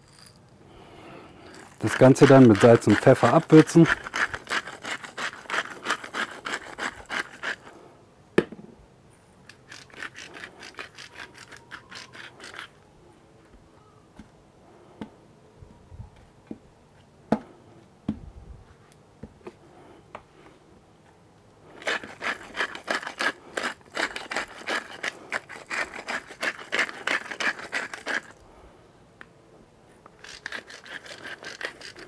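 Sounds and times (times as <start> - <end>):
spice mill grinding: 0.0 - 0.4, 1.4 - 7.8, 9.5 - 12.8, 21.8 - 28.4, 30.1 - 32.0.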